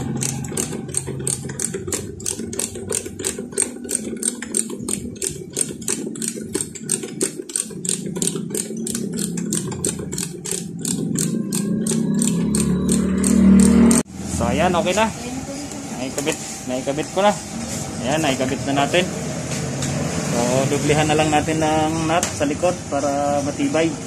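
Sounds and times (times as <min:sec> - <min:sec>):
ratchet wrench clicking: 0:00.0 - 0:14.0.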